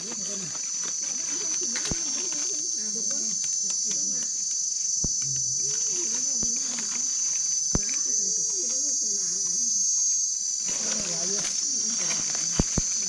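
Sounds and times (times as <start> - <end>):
insect chorus drone: 0.0 - 13.0.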